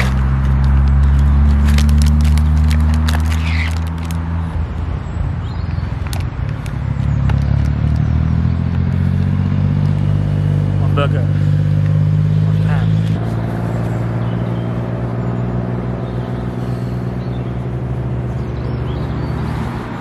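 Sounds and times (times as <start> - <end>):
plastic film crinkling: 0.0 - 4.4
traffic engines rumbling: 0.0 - 20.0.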